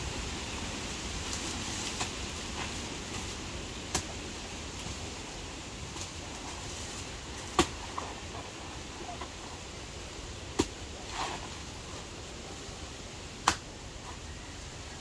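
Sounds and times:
steady background hiss: 0:00.0 - 0:15.0
short sharp snaps: 0:13.4 - 0:13.6.

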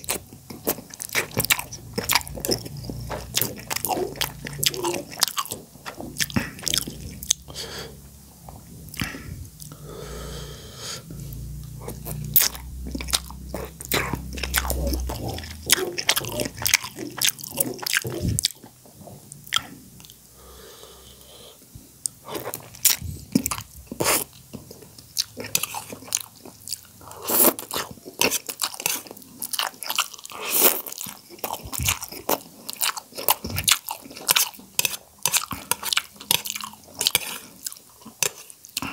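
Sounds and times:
chewing and slurping noodles: 0:00.0 - 0:08.0, 0:11.3 - 0:20.2, 0:22.2 - 0:38.9.

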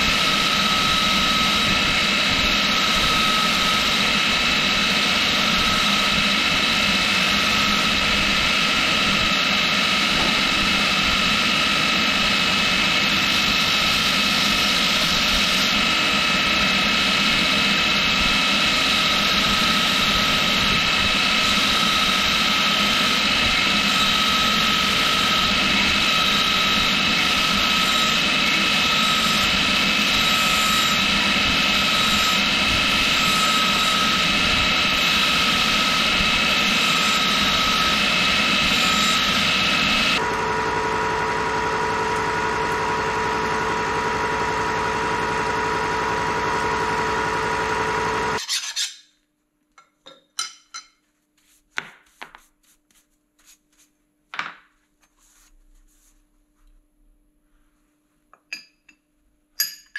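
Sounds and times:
milling machine running: 0:00.0 - 0:48.4
belt grinder grinding steel: 0:18.5 - 0:40.2, 0:48.4 - 0:49.0.

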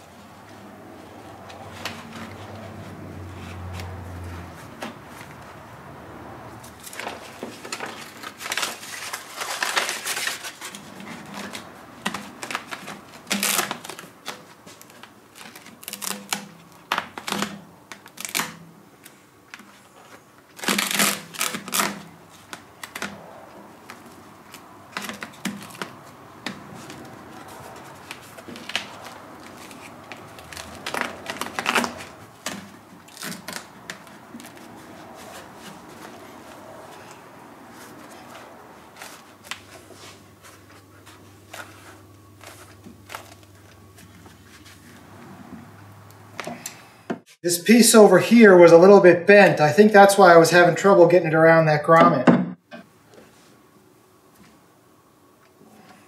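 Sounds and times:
hands rustling insulation pad: 0:19.0 - 0:45.2.

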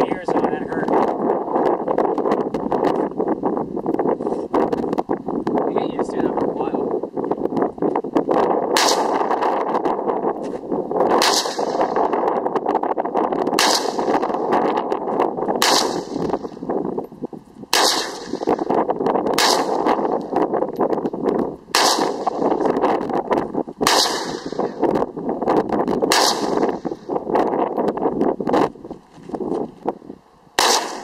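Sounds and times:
rifle shots: 0:08.7 - 0:09.5, 0:11.1 - 0:12.1, 0:13.6 - 0:14.5, 0:15.6 - 0:16.5, 0:17.7 - 0:18.7, 0:19.3 - 0:20.2, 0:21.7 - 0:22.6, 0:23.8 - 0:24.8, 0:26.1 - 0:27.0, 0:30.6 - 0:31.0.

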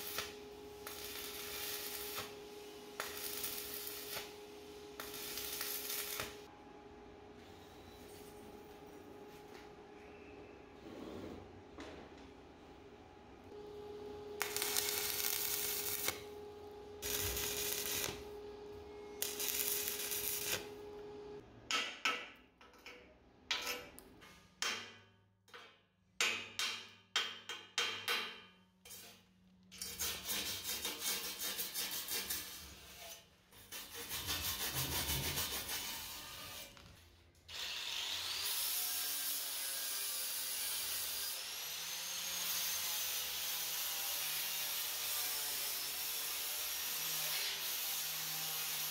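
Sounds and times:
welding arc crackling: 0:00.0 - 0:06.5, 0:14.0 - 0:21.4.

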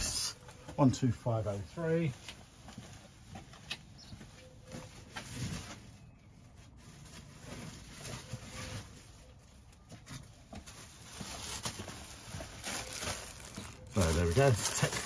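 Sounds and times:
plastic bags rustling: 0:04.7 - 0:15.0.

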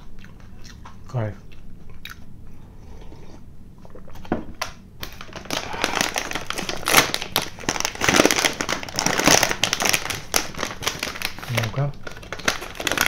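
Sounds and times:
sweet wrapper crinkling: 0:05.0 - 0:13.0.

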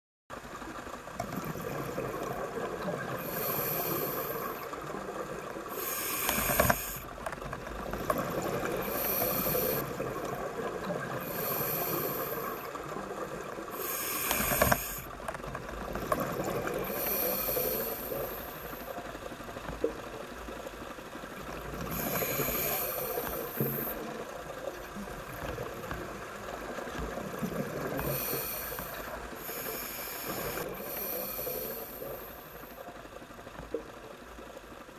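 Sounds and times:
steady hiss: 0:03.1 - 0:04.8, 0:05.4 - 0:07.1, 0:08.5 - 0:10.1, 0:10.9 - 0:13.0, 0:13.6 - 0:15.1, 0:16.7 - 0:19.2, 0:21.7 - 0:24.8, 0:27.5 - 0:33.0
diver breathing through regulator: 0:03.2 - 0:04.8, 0:05.7 - 0:07.1, 0:08.7 - 0:10.0, 0:11.2 - 0:12.8, 0:13.7 - 0:15.1, 0:16.8 - 0:18.9, 0:21.8 - 0:24.1, 0:27.8 - 0:32.7.

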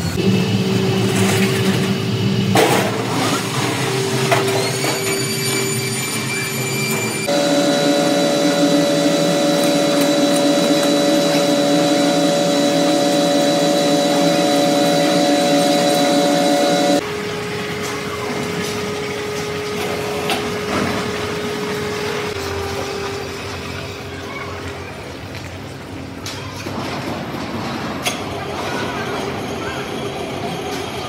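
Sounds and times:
metalworking machine whining: 0:00.0 - 0:24.1.

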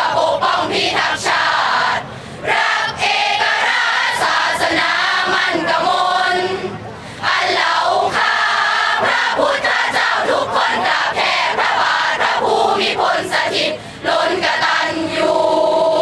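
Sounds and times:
crowd singing in unison: 0:00.0 - 0:16.0.

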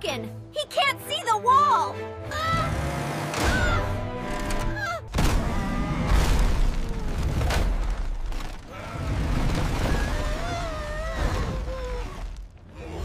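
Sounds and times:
deep rumbling: 0:03.5 - 0:13.0
heavy crashes: 0:05.1 - 0:11.7.

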